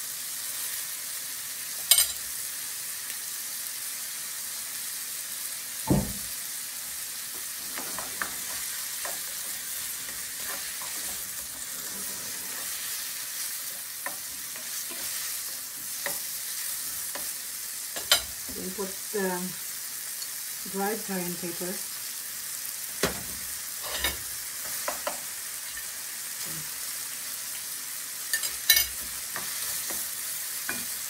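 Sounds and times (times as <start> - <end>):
food sizzling in a frying pan: 0.0 - 31.0
knock: 5.9 - 6.2
spatula scraping a pan: 7.5 - 17.4, 23.8 - 25.9.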